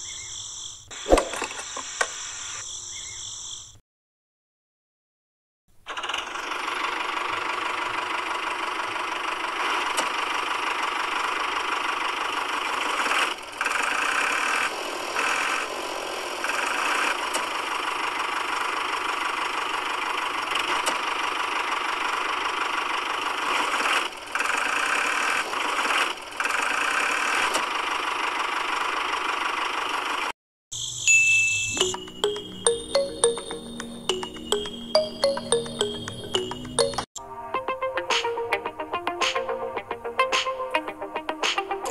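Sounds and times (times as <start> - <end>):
small toy motor whirring: 12.8 - 17.5.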